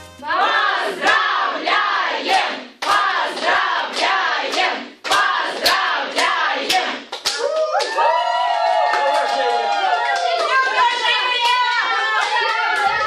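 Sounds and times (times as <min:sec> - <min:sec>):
people chanting in unison: 0:00.3 - 0:07.1
people clapping in time: 0:02.8 - 0:13.0.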